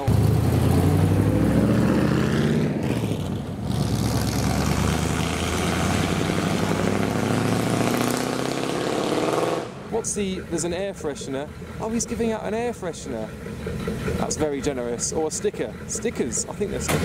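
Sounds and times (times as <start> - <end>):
pickup truck engine running: 9.7 - 17.0.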